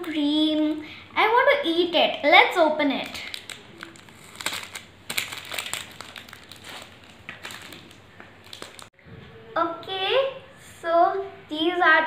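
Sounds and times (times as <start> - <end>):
plastic wrapper crinkling: 2.9 - 8.9.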